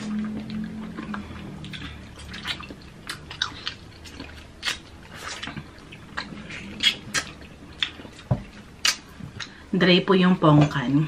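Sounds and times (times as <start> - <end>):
wet biting and chewing fruit: 0.0 - 9.6
sharp mouth clicks and smacks: 0.4 - 8.0, 8.8 - 9.6.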